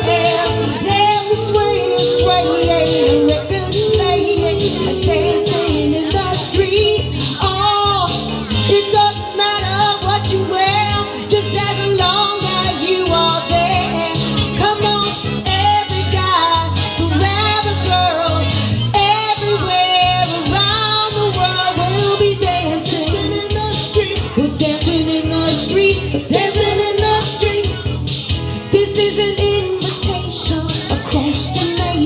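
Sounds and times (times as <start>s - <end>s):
electronic keyboard: 0.0s - 21.5s
woman singing into microphone: 0.0s - 28.0s, 28.6s - 32.0s
steady bass line: 0.0s - 32.0s.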